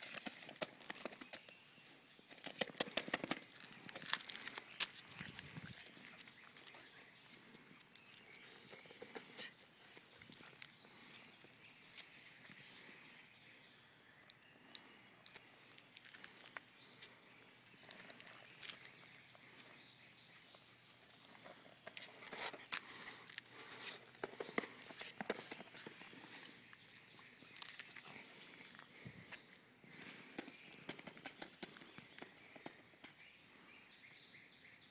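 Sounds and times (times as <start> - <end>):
dog paws clicking on concrete: 2.3 - 12.9, 14.3 - 19.7, 21.0 - 29.1, 29.9 - 33.2.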